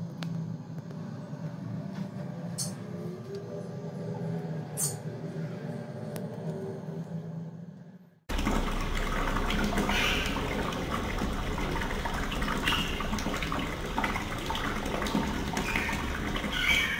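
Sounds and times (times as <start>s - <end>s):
tap water splashing into sink: 8.3s - 16.9s
water swirling down drain: 8.3s - 16.9s.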